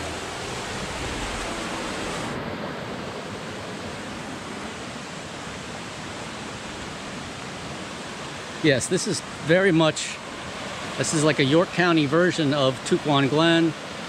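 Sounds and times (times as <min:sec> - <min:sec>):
stream rushing over rocks: 0:00.0 - 0:14.0.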